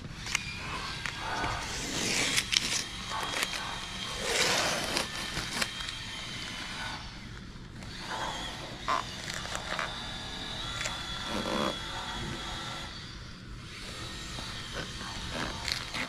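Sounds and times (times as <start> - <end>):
masking tape handling: 0.2 - 6.0, 14.8 - 16.0.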